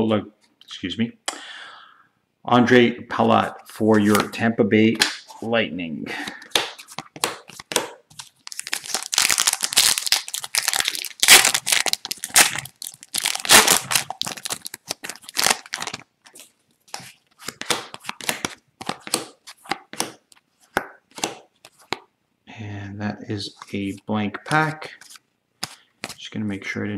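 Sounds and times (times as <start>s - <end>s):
foil wrapper crinkling and tearing: 6.8s - 16.4s.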